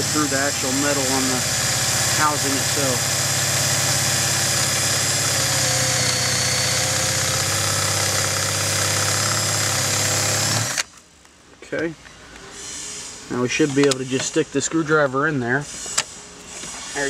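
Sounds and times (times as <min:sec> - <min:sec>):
electric drill boring into metal: 0:00.0 - 0:10.9.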